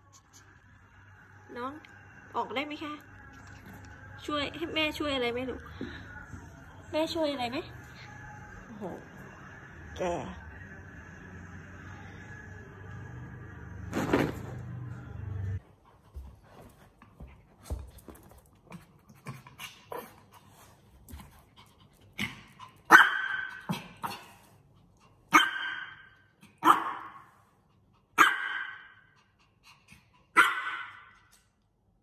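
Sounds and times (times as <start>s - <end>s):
small dog barking: 22.9s - 24.2s, 25.3s - 26.0s, 26.6s - 27.2s, 28.2s - 28.9s, 30.3s - 31.1s.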